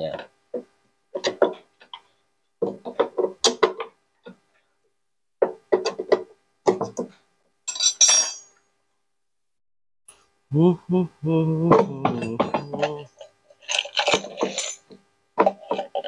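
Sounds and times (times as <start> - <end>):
hand tool clinking on metal: 7.7 - 8.5, 13.7 - 14.9.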